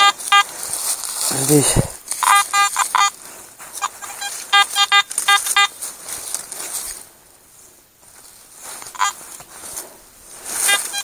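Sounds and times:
metal detector beeping: 0:00.0 - 0:00.6, 0:02.1 - 0:03.2, 0:03.8 - 0:05.8, 0:08.8 - 0:09.4, 0:10.5 - 0:11.0.

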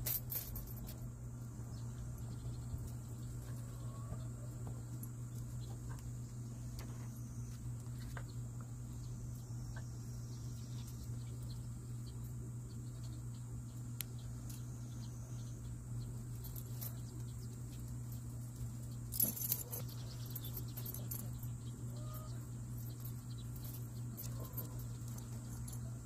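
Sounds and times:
metal chain clinking: 0:00.0 - 0:01.0, 0:18.1 - 0:22.2
low hum: 0:00.0 - 0:26.0.

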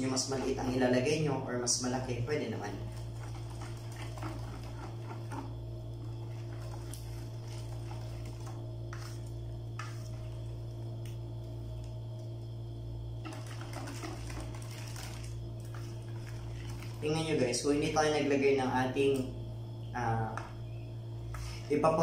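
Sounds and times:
whisk stirring thick mixture: 0:00.0 - 0:10.7, 0:13.2 - 0:18.1
steady low hum: 0:00.0 - 0:22.0.

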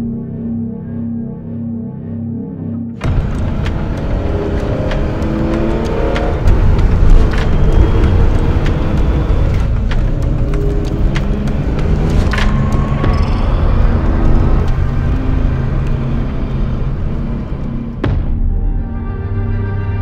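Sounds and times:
car engine revving hard: 0:03.0 - 0:18.0.

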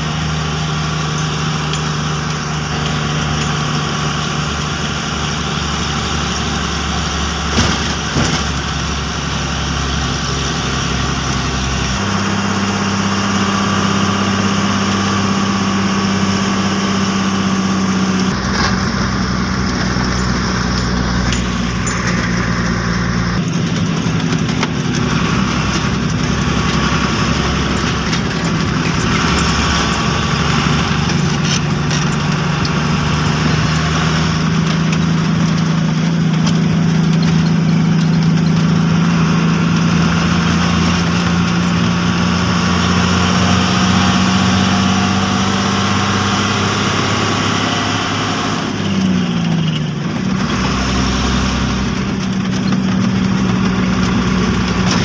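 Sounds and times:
truck engine running: 0:00.0 - 0:55.0.

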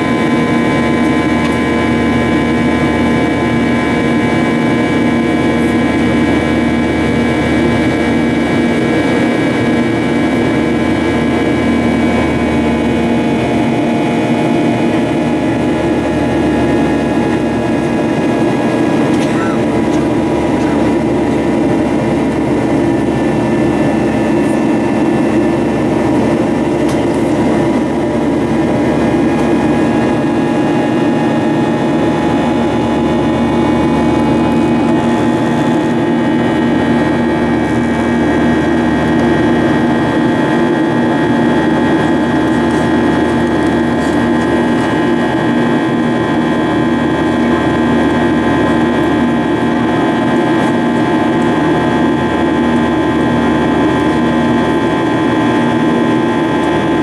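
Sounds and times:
jet engines running: 0:00.0 - 0:57.0
whining tones: 0:02.9 - 0:47.3.

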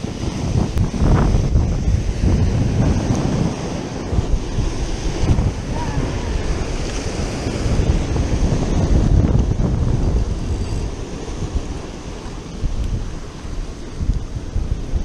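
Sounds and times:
surf breaking over rocks: 0:00.0 - 0:15.0
wind buffeting microphone: 0:00.0 - 0:15.0.

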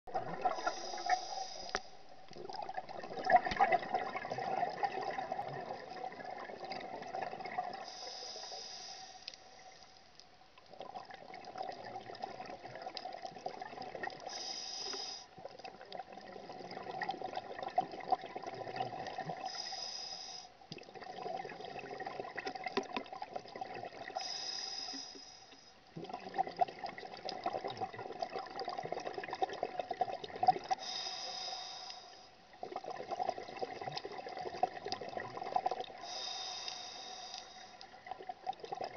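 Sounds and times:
bubbling exhalations underwater: 0:00.1 - 0:01.0, 0:02.4 - 0:07.8
high hiss of inhalation: 0:00.6 - 0:02.0, 0:07.9 - 0:09.4, 0:14.3 - 0:15.3, 0:19.5 - 0:20.5, 0:24.2 - 0:25.6, 0:30.8 - 0:32.3, 0:36.0 - 0:37.8.

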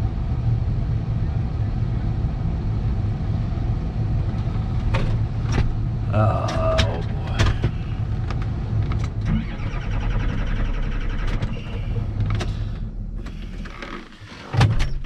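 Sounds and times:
diesel engine cranking on starter: 0:04.5 - 0:15.0.

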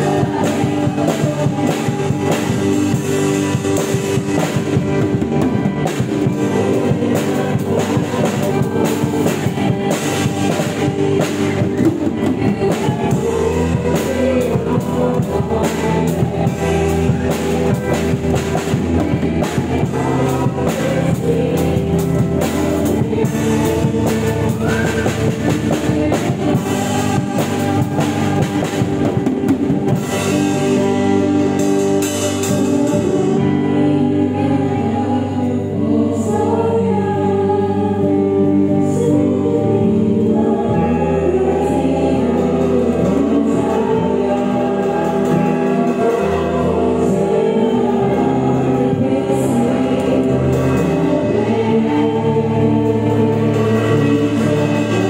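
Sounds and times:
drum kit rock groove: 0:00.0 - 0:55.0
sustained keyboard chords: 0:00.0 - 0:55.0.

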